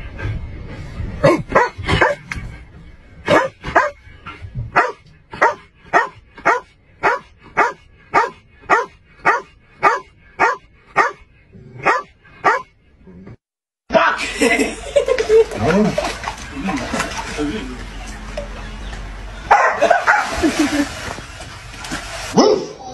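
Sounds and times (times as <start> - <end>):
dog barking: 1.2 - 2.2, 3.3 - 4.0, 4.8 - 11.2, 11.8 - 12.7, 19.5 - 20.3, 22.4 - 22.7.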